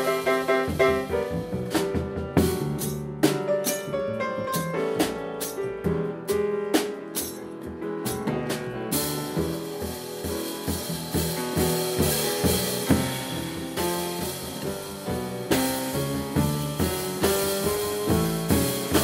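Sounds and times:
snare and rim hits: 0:00.0 - 0:06.0
double bass: 0:00.0 - 0:06.7, 0:07.6 - 0:19.0
grand piano: 0:00.0 - 0:19.0.

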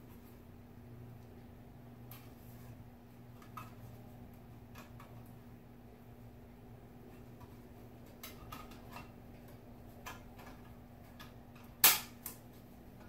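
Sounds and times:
sharp plastic snap: 0:11.8 - 0:12.4.

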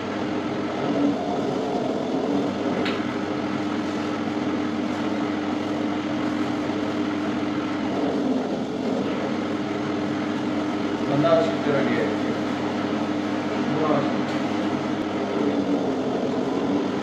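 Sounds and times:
dough sheeting machine motor hum: 0:00.0 - 0:17.0.

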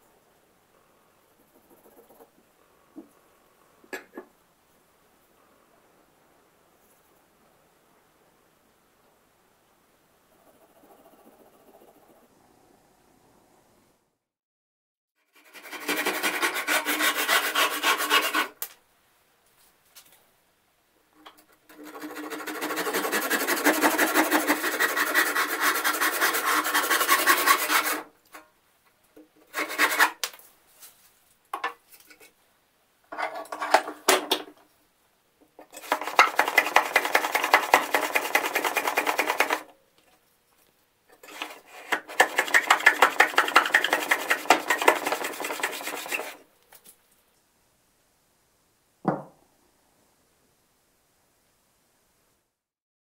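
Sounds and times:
hand plane shaving wood: 0:15.4 - 0:18.6, 0:21.7 - 0:28.1, 0:29.5 - 0:30.2, 0:35.8 - 0:39.7, 0:41.2 - 0:46.4
handsaw cutting wood: 0:15.4 - 0:18.6, 0:21.7 - 0:28.1, 0:29.5 - 0:30.2, 0:35.8 - 0:39.6, 0:41.2 - 0:46.4
wood knocked on bench: 0:49.0 - 0:49.4.

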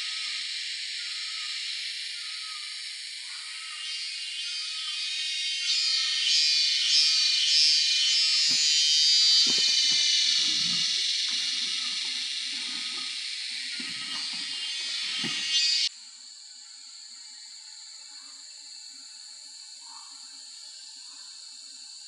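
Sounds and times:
cicada chorus drone: 0:00.0 - 0:22.0
tarp and bag rustling: 0:08.5 - 0:15.6
footsteps on dry leaves: 0:08.5 - 0:15.8.

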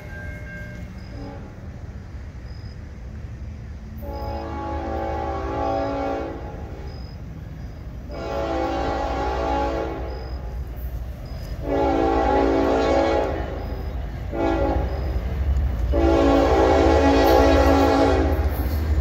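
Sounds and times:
locomotive air horn blasts: 0:00.0 - 0:01.9, 0:04.0 - 0:06.9, 0:08.0 - 0:10.6, 0:11.4 - 0:19.0
train rumbling: 0:00.0 - 0:19.0.

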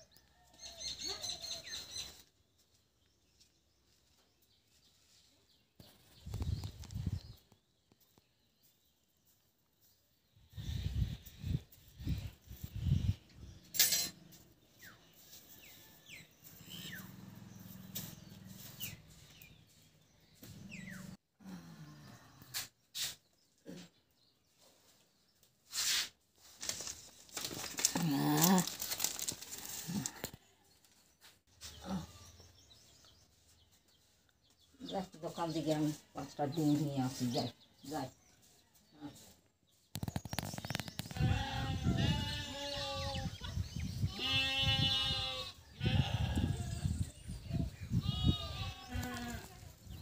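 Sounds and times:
plastic bag rustling and crinkling: 0:26.4 - 0:30.4
goats bleating: 0:41.1 - 0:43.2, 0:44.1 - 0:46.7.

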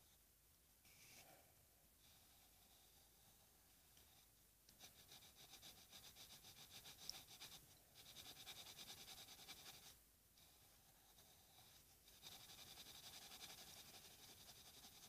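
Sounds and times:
pencil scratching on paper: 0:04.1 - 0:15.0.

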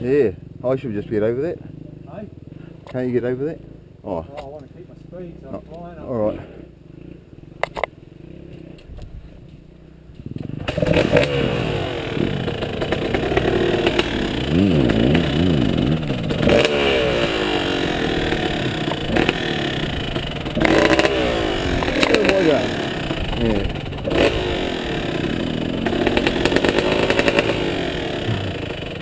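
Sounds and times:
dirt bike engine revving: 0:05.1 - 0:08.9, 0:09.8 - 0:29.0
clatter over rough track: 0:07.0 - 0:29.0.

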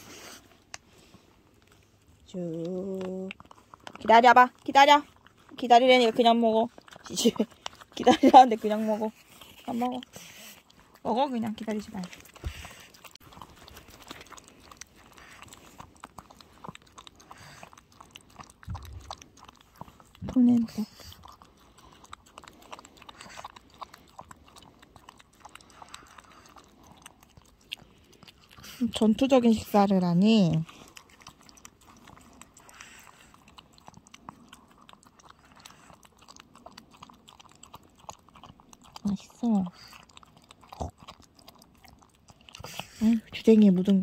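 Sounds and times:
dog lapping and chewing: 0:00.0 - 0:44.0.

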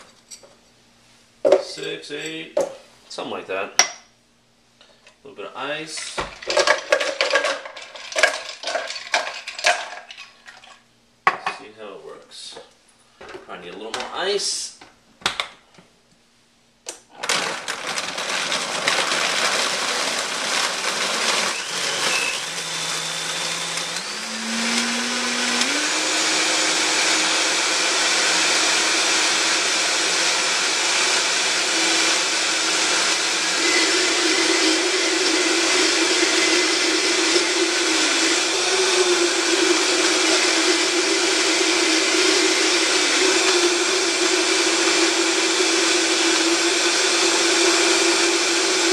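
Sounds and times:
blender blending ice: 0:06.0 - 0:10.8, 0:17.1 - 0:48.9.

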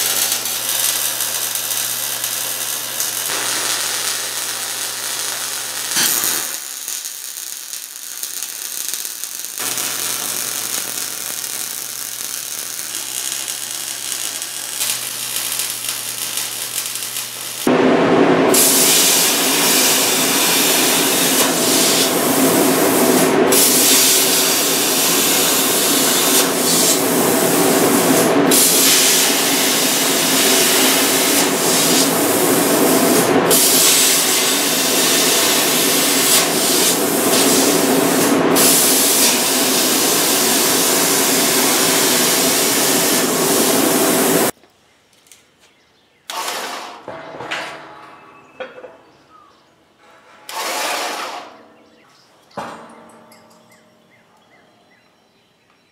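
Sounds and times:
plasma cutter hissing: 0:00.0 - 0:17.7, 0:18.5 - 0:44.5
welder arc crackling: 0:00.0 - 0:44.6
hum: 0:02.6 - 0:23.5.

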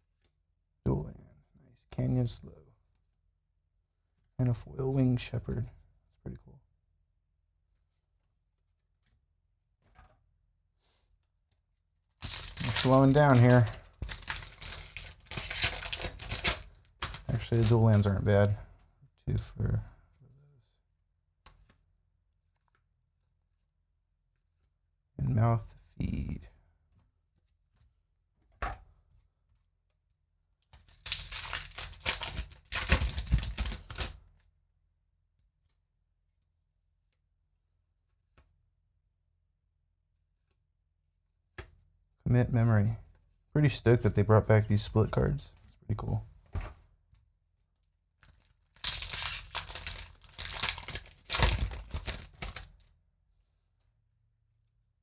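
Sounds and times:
foil wrapper tearing and crinkling: 0:12.2 - 0:18.1, 0:30.8 - 0:34.2, 0:48.2 - 0:52.9.

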